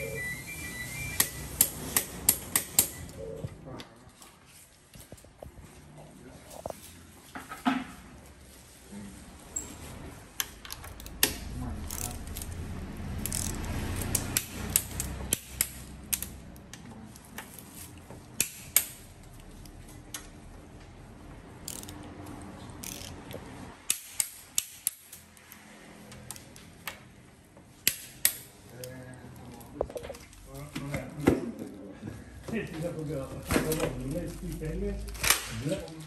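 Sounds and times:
torque wrench ratcheting clicks: 0:13.2 - 0:16.3, 0:21.6 - 0:22.1, 0:22.8 - 0:23.2.

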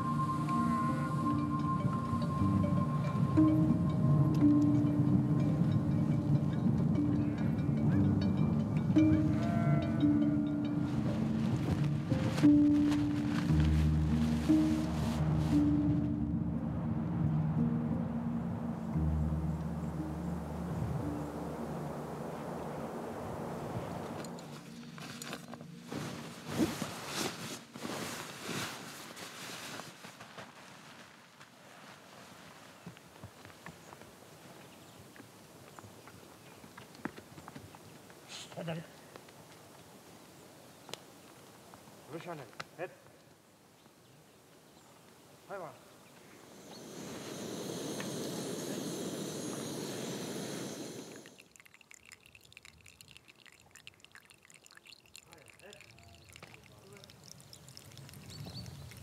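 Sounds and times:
tent fabric rustling: 0:10.9 - 0:16.1, 0:24.0 - 0:33.6
gas stove burner hissing: 0:46.3 - 0:51.4
water dripping and ticking: 0:51.1 - 0:59.0.

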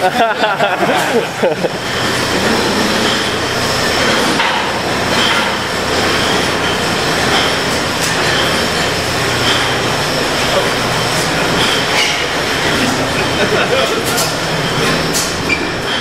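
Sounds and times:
conveyor and bottles clattering: 0:00.0 - 0:16.0
glass bottles clinking: 0:01.9 - 0:16.0.

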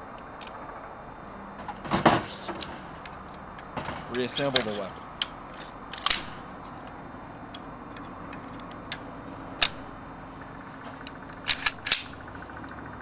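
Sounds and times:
metallic rifle parts clicking: 0:04.5 - 0:06.8, 0:07.5 - 0:09.9, 0:10.8 - 0:12.4.

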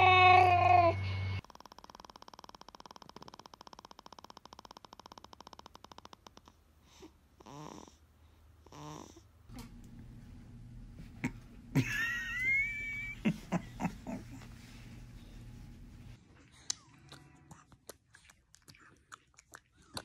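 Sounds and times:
baby snoring: 0:01.6 - 0:08.0, 0:08.6 - 0:09.3.

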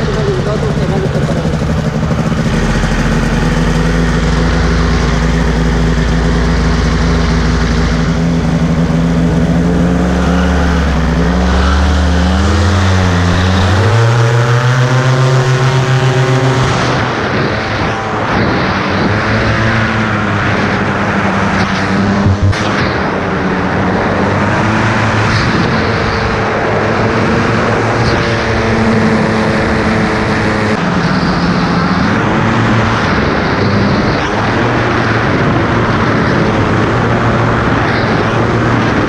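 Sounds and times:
two-stroke paramotor engine running: 0:00.0 - 0:23.6.

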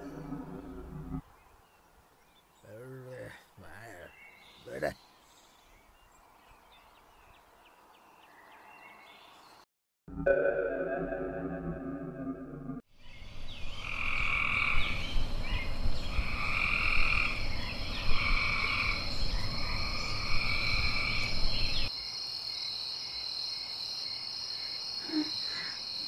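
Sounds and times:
frogs croaking: 0:13.7 - 0:15.0, 0:16.1 - 0:26.0.

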